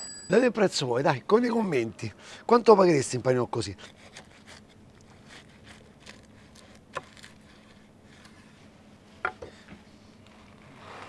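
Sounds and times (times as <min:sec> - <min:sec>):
knife cutting crusty bread: 0:03.8 - 0:08.5.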